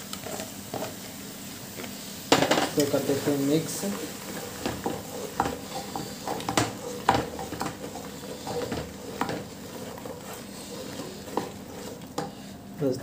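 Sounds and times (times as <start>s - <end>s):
spatula knocking and scraping pot: 2.3s - 12.6s.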